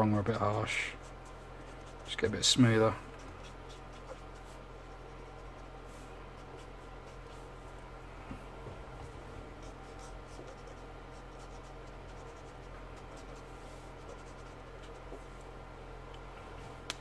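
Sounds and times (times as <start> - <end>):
low hum: 0.0 - 17.0
marker rubbing on paper: 0.3 - 7.5, 9.5 - 15.3.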